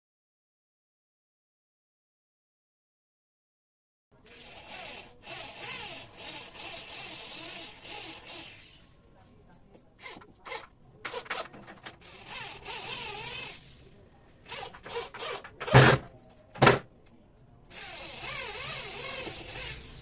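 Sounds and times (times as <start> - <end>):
cordless drill into wood: 4.3 - 8.8, 10.0 - 13.7, 14.4 - 16.0, 17.7 - 20.0.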